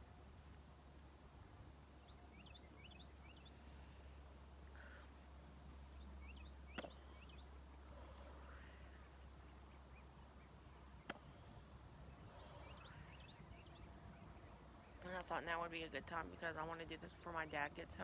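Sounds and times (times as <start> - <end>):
faint bird chirps: 1.9 - 15.1.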